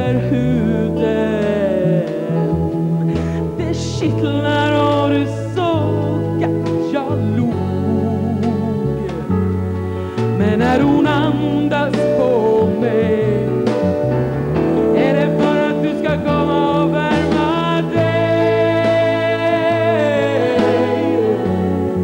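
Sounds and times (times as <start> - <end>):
woman singing: 0.0 - 9.4, 10.2 - 13.8, 15.0 - 22.0
instrumental backing music: 0.0 - 22.0.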